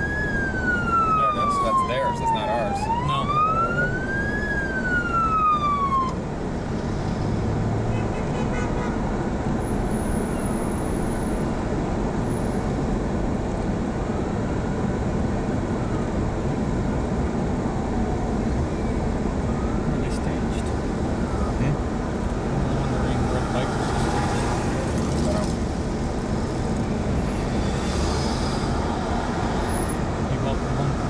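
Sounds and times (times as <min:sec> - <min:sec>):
police siren wailing: 0:00.0 - 0:06.2, 0:18.7 - 0:25.0
road and engine noise: 0:00.0 - 0:31.0.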